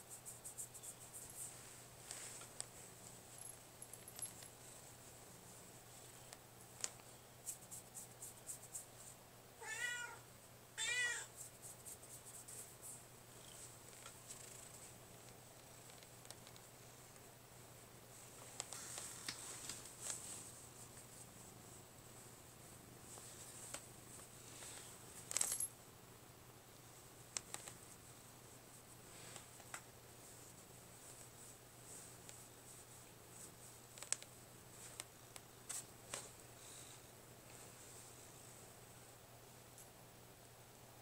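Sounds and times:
cat meowing: 9.6 - 10.2, 10.8 - 11.3.

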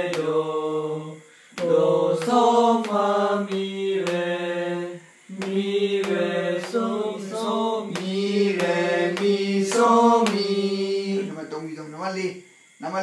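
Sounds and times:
person singing solo notes: 5.0 - 11.3.

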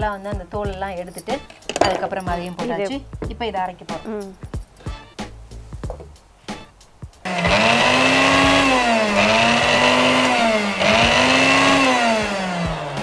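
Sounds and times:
mixer grinder motor whining: 7.3 - 13.0.

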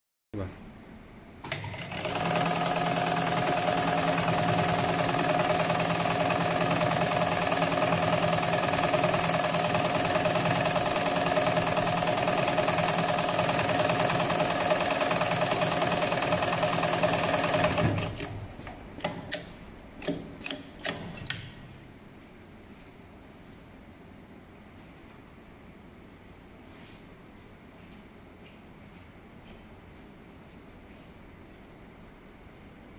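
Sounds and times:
sewing machine running: 1.5 - 18.4.

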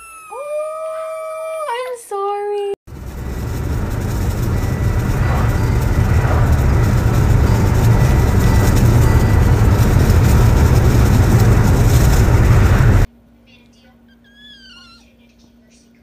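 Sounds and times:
wind buffeting through car window: 2.9 - 13.1.

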